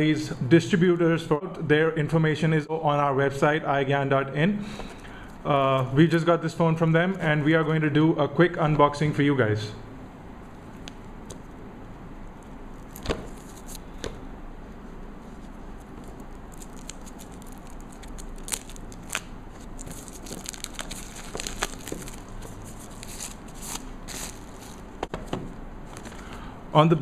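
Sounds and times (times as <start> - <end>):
plastic wrap crinkling and tearing: 12.7 - 13.9, 15.7 - 25.0.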